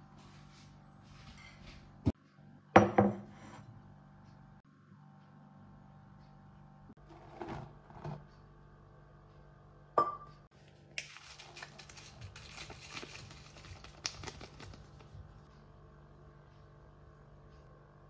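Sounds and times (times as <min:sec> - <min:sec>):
crinkling and scraping: 0:07.0 - 0:08.4, 0:10.6 - 0:15.5.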